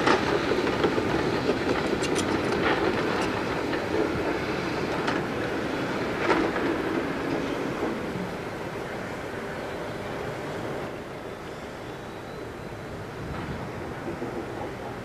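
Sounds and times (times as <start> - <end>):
excavator engine running: 0.0 - 7.3
crawler tracks clanking: 0.0 - 8.1
brief high squeak: 2.0 - 2.5.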